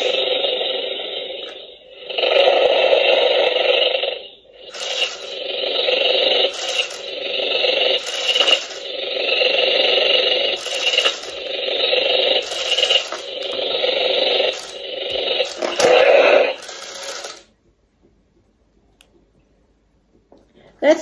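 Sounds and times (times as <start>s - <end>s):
toy motor whirring: 0.0s - 17.5s
scraping rattle: 4.7s - 17.4s.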